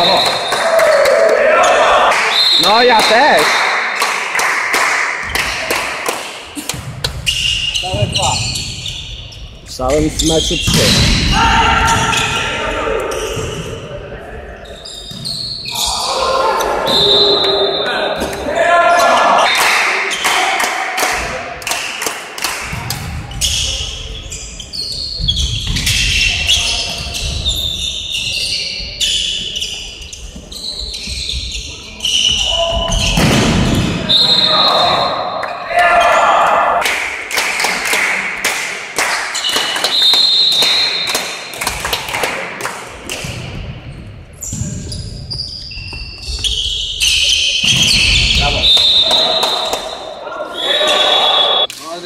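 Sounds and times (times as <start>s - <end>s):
shoes squeaking on court floor: 6.6s - 11.2s, 14.6s - 19.5s, 22.9s - 33.2s, 43.2s - 49.7s
volleyball hits echoing: 32.8s - 35.6s
volleyball bouncing and struck: 32.9s - 34.1s.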